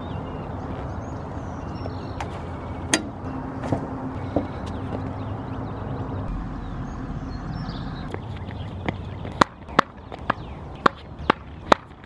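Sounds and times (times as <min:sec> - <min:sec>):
steady low rumble: 0:00.0 - 0:12.0
tennis ball sharp crack: 0:09.3 - 0:12.0.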